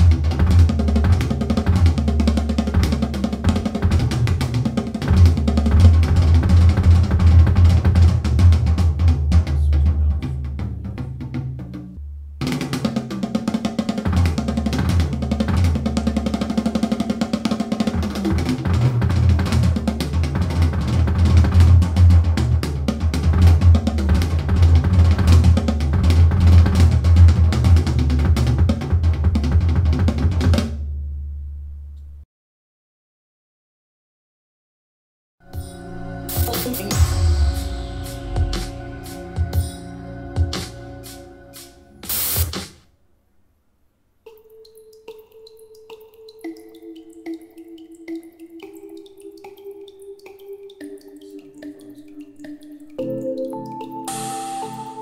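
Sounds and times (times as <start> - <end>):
drum music over speakers: 0.0 - 30.8, 35.5 - 42.8, 54.1 - 55.0.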